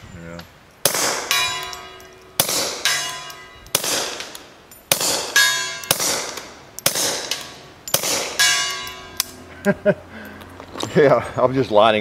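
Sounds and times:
suppressed pistol shots: 0.8 - 1.8, 2.4 - 3.1, 3.7 - 8.5
steel gong target ringing: 1.3 - 3.8, 7.4 - 9.3.

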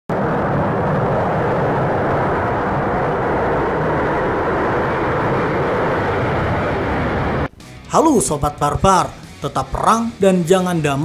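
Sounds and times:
jet engines roaring: 0.1 - 7.6.

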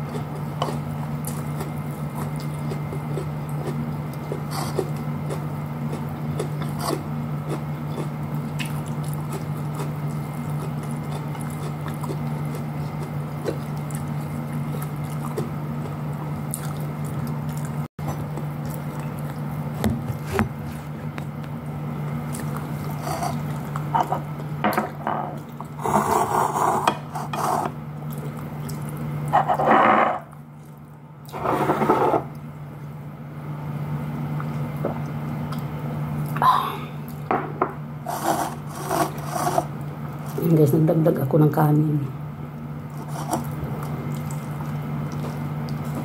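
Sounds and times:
wet chewing mouth sounds: 0.0 - 24.6, 28.0 - 29.5, 42.5 - 46.0
steady low hum: 0.0 - 46.0.

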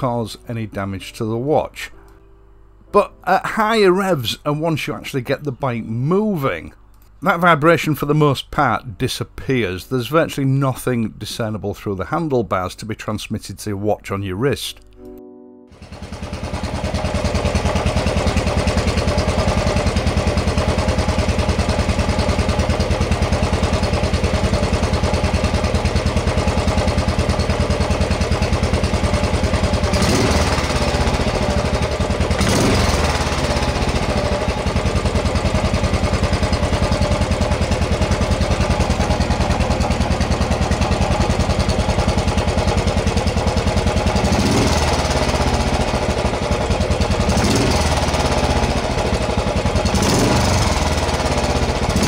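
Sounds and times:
motorcycle engine idling and revving: 15.8 - 52.0.

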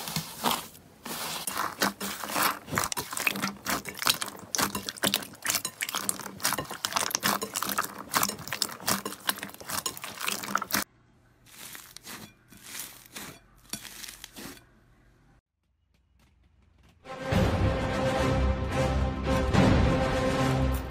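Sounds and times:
foam slime crackling: 0.0 - 14.6
slime squelching: 0.0 - 14.8.

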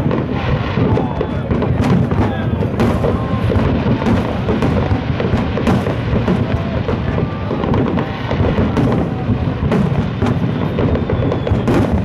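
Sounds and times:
fireworks booming: 0.0 - 12.0
fireworks cracking: 0.0 - 12.0.

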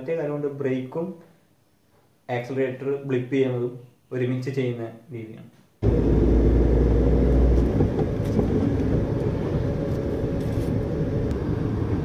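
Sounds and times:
car engine and road rumble: 5.8 - 12.0.

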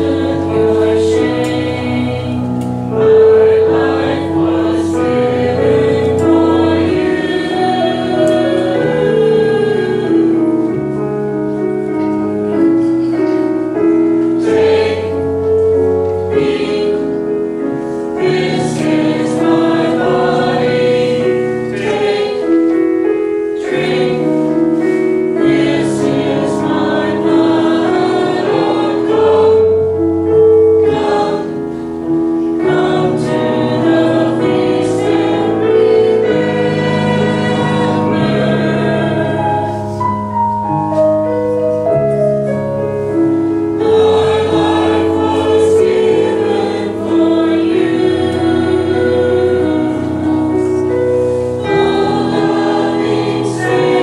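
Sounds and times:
mixed choir singing: 0.0 - 11.0, 13.7 - 40.0, 43.6 - 54.0.

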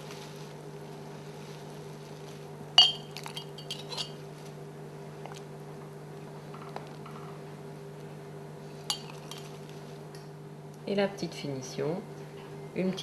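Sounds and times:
steady low hum: 0.0 - 13.0
metal ladle clinking on glass: 2.8 - 4.2, 8.9 - 9.4.

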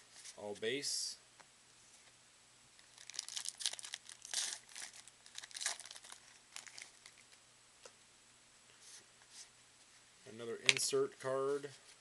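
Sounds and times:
foil wrapper tearing and crinkling: 2.8 - 7.2.

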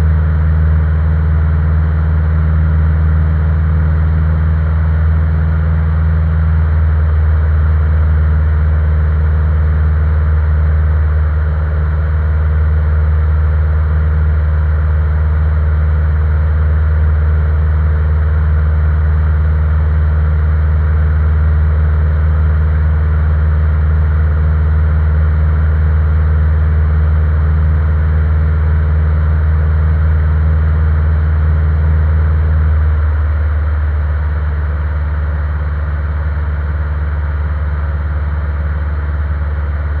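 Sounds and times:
propeller aircraft engine droning: 0.0 - 40.0.

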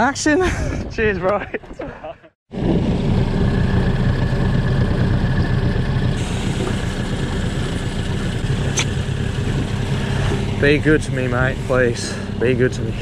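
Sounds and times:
outboard motor running: 2.5 - 13.0
hiss: 6.2 - 7.1.

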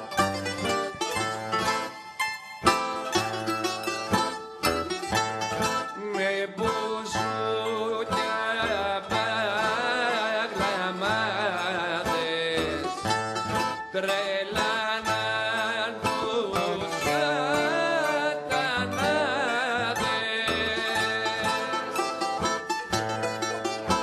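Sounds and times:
plucked bouzouki and guitar: 0.0 - 24.0
man singing: 5.9 - 13.1, 13.8 - 22.4.

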